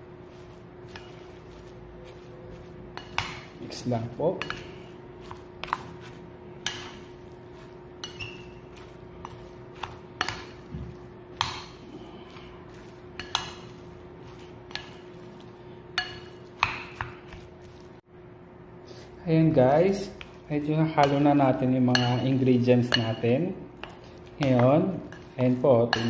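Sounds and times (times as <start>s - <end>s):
steady low hum: 0.0s - 26.0s
cutlery clinking against ceramic bowl: 6.6s - 10.7s, 21.0s - 26.0s.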